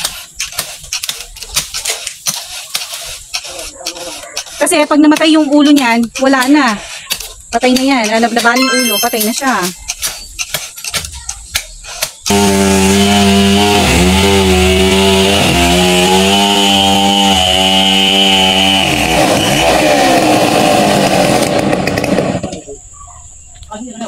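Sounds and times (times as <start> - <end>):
chainsaw cutting wood: 0.0 - 8.6, 12.2 - 22.6.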